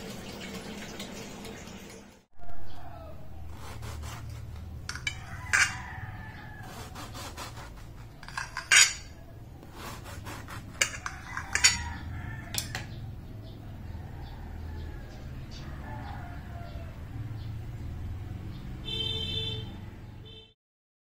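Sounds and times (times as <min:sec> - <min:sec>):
knife clinking on ceramic plate: 0:04.9 - 0:05.8, 0:08.2 - 0:09.2, 0:10.8 - 0:12.9.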